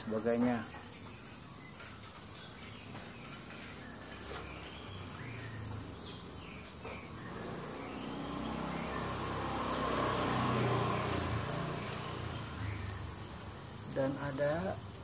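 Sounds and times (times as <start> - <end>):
high insect buzz: 3.8 - 15.0
vehicle engine passing: 4.0 - 14.6.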